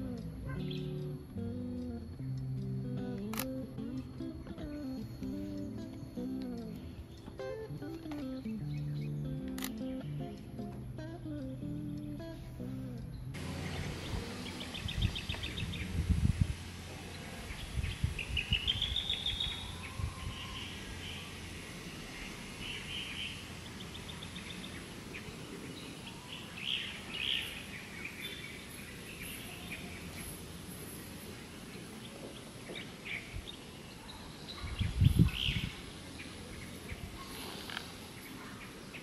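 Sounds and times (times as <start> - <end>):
birds chirping and trilling: 0.0 - 39.0
wind buffeting microphone: 13.4 - 21.6, 34.6 - 36.1.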